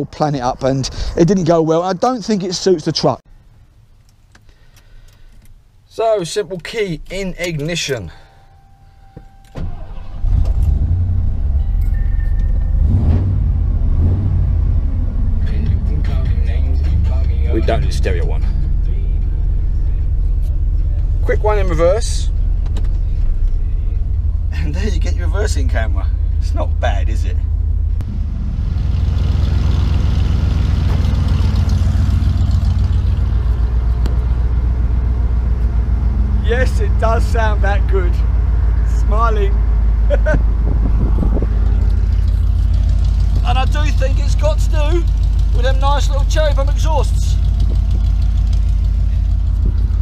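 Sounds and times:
engine cranking: 9.4s - 13.4s, 41.1s - 50.0s
engine idling deeply: 9.7s - 50.0s.

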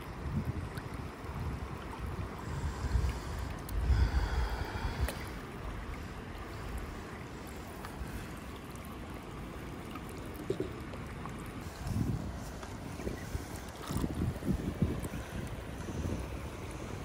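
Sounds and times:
river water gurgling through net: 0.0s - 17.0s.

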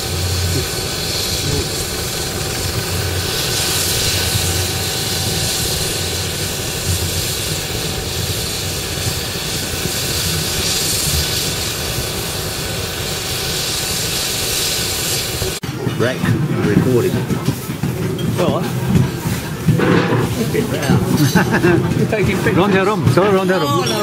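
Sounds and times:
low rumble: 0.0s - 12.0s
helicopter engine whine: 0.0s - 15.6s
rotor wash rushing: 0.0s - 24.0s.

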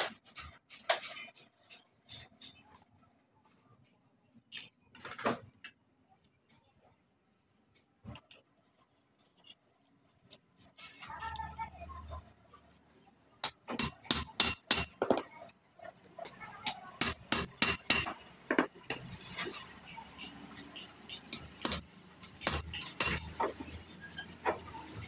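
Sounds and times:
metal tools clinking on metal: 0.1s - 2.9s, 18.8s - 25.0s.

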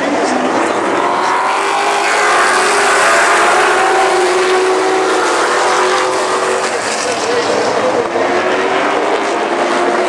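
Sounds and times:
stock car engines racing: 0.0s - 10.0s.

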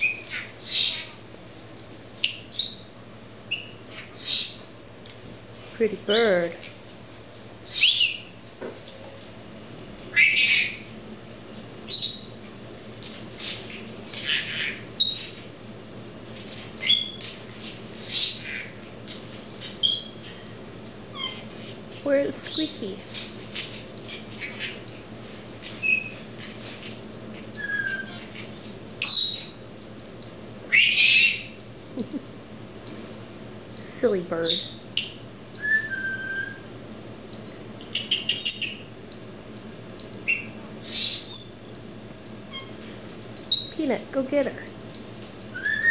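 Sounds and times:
parrot chirping and whistling: 0.0s - 1.1s, 3.5s - 4.6s, 7.7s - 8.3s, 14.3s - 15.4s, 16.8s - 17.2s, 19.8s - 20.2s, 25.8s - 26.2s, 27.6s - 28.2s, 29.0s - 29.5s, 30.7s - 31.6s, 34.5s - 36.7s, 37.9s - 38.9s, 40.2s - 41.7s, 42.5s - 42.8s, 45.5s - 45.9s
parrot squawking: 0.0s - 1.2s, 3.5s - 4.6s, 7.7s - 8.3s, 10.1s - 10.9s, 14.2s - 15.4s, 18.0s - 18.8s, 21.1s - 21.6s, 27.6s - 28.3s, 30.7s - 31.6s, 40.3s - 41.6s, 45.6s - 45.9s.

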